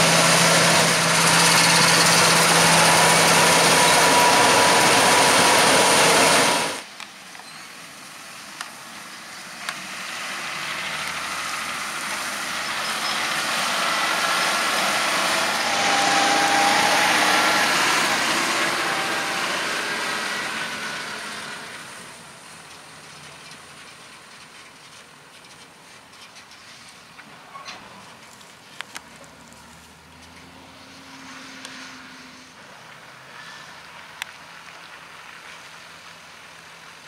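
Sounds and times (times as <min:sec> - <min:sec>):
tractor engine passing: 0:00.0 - 0:06.8, 0:10.0 - 0:22.6.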